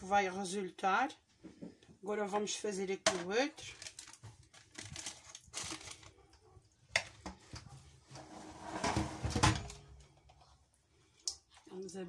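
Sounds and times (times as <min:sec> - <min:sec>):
parchment paper rustling: 0:03.6 - 0:06.3.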